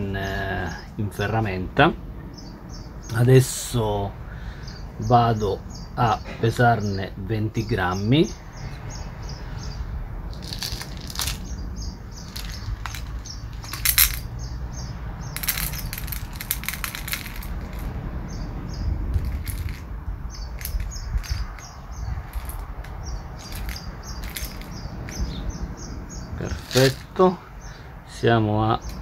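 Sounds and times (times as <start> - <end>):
flakes rattling into plastic dish: 10.4 - 11.4, 12.3 - 14.2, 26.6 - 27.1.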